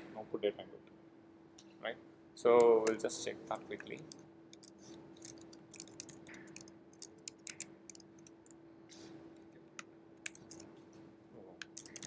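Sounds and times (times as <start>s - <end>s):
steady low hum: 0.0s - 12.0s
keyboard typing clicks: 3.9s - 8.5s, 11.6s - 12.0s.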